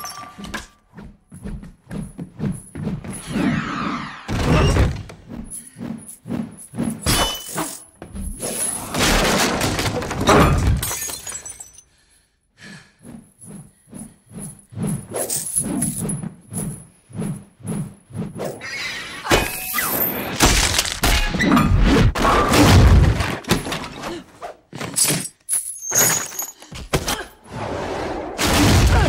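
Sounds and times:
crashing and breaking impacts: 8.8 - 11.6, 20.2 - 23.9.

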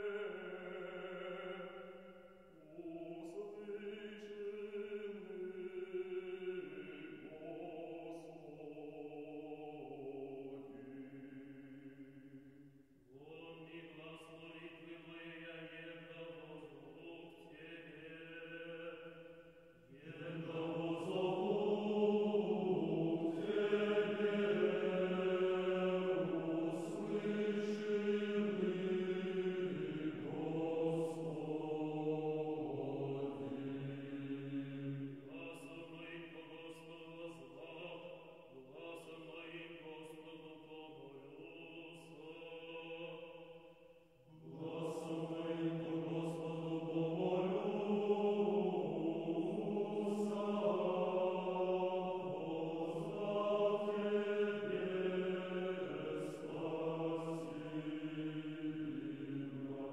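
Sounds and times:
slow sung chant: 0.0 - 59.9.

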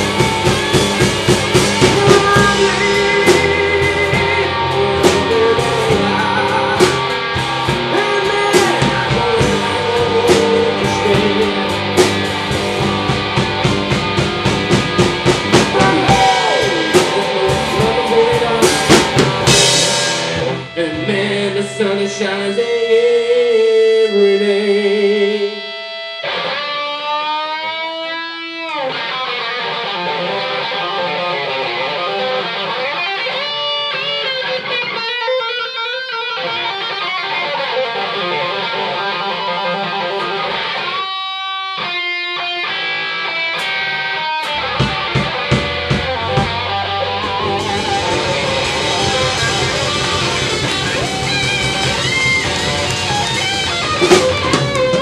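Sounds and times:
steady beat: 0.0 - 20.8, 44.4 - 55.0
slow blues on guitars: 0.0 - 55.0
electric guitar bent note: 43.6 - 55.0.

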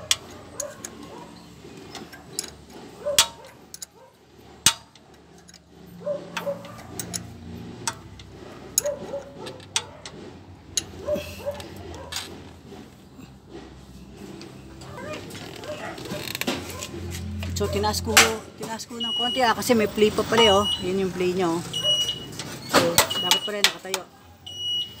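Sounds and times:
metallic tool clicks and clanks: 0.0 - 12.6, 14.3 - 18.7.

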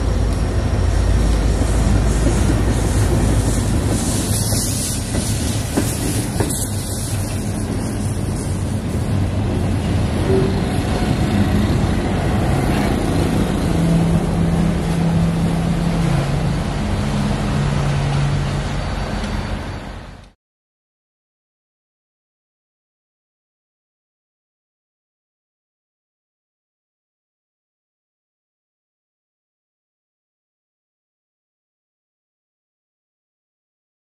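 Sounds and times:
train wheel and rail noise: 0.0 - 20.4.

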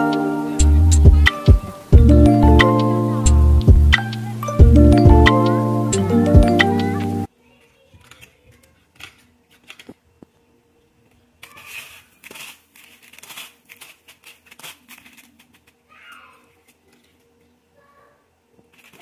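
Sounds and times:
crunching in dry breadcrumbs: 11.4 - 16.7.

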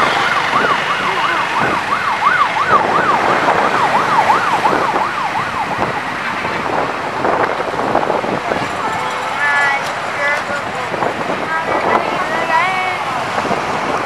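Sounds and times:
siren yelping: 0.0 - 9.8
steady rushing background noise: 0.0 - 14.0.

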